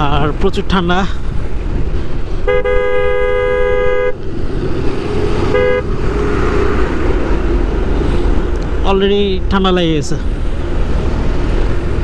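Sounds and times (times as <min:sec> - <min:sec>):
road and wind rush: 0:00.0 - 0:12.0
vehicle horn honking: 0:02.4 - 0:04.2, 0:05.5 - 0:05.9.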